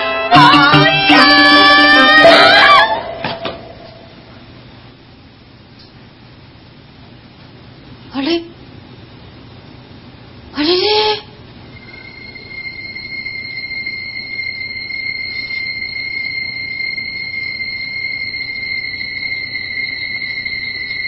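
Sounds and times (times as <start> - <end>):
steady high-pitched tone: 0.0 - 4.4, 11.6 - 21.0
faint higher tone: 11.7 - 21.0.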